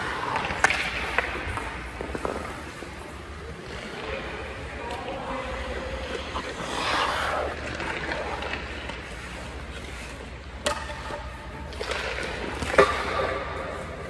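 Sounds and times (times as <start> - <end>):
hockey stick slapping puck: 0.0 - 2.9, 4.9 - 10.0, 10.6 - 13.9
skate blades scraping ice: 0.0 - 10.6.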